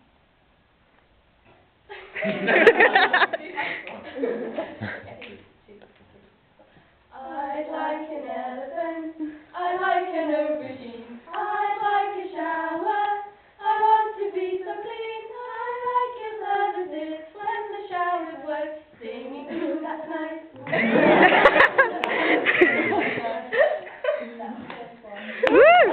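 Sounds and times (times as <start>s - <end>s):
women singing unaccompanied: 7.1s - 20.8s.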